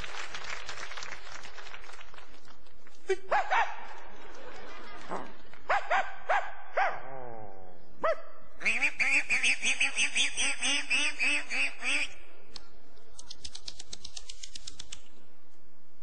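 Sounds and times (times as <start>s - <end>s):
dog yelps and barks: 3.3s - 3.9s, 5.7s - 7.2s, 8.0s - 8.5s.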